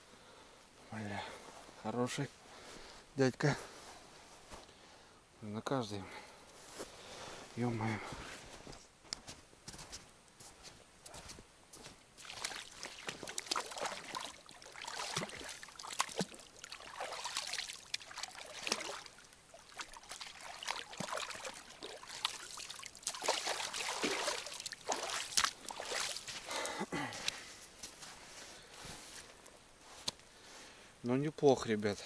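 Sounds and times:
water splashing and dribbling: 0:12.2 - 0:27.0.

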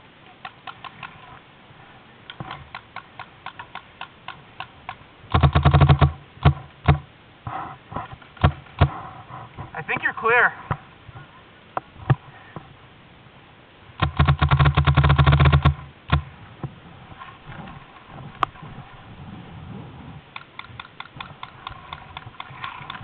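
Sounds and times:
faint clicks: 0:00.2 - 0:01.4, 0:02.2 - 0:07.0, 0:20.3 - 0:23.0
paintball marker firing: 0:02.3 - 0:07.0, 0:14.0 - 0:16.3.

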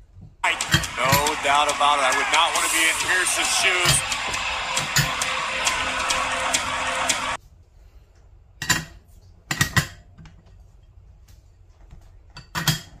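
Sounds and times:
commentary and music: 0:00.4 - 0:07.4.

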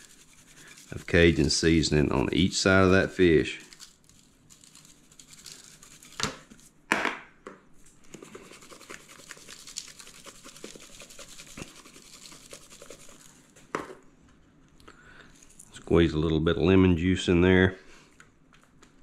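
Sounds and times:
seasoning shaker rattling: 0:00.0 - 0:02.1, 0:03.0 - 0:06.7, 0:08.2 - 0:13.5.

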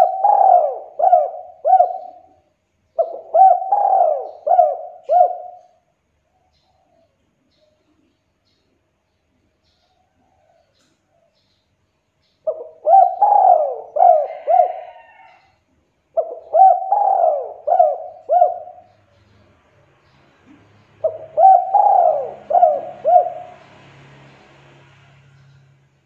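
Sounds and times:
dove cooing: 0:00.0 - 0:05.8, 0:12.5 - 0:15.5, 0:16.1 - 0:19.2, 0:21.0 - 0:23.7.

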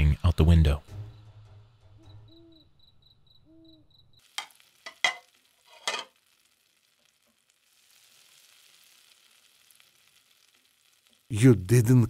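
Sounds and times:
faint high chirps: 0:00.8 - 0:04.3
low hoots: 0:02.0 - 0:02.8, 0:03.4 - 0:04.0
utensil scraping cooking pot: 0:04.4 - 0:06.2.

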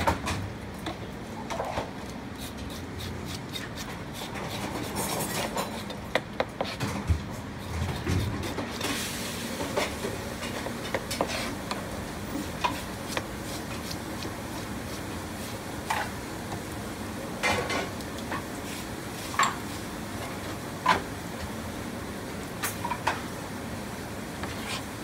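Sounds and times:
steady background noise: 0:00.0 - 0:25.0
knife scraping fish skin: 0:02.4 - 0:06.8, 0:07.6 - 0:09.0, 0:12.4 - 0:15.6.

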